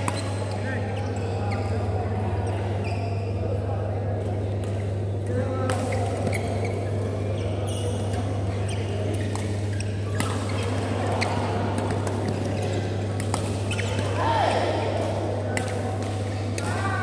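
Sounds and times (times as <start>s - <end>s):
badminton rackets striking shuttlecock: 5.7s - 6.6s, 9.2s - 16.8s.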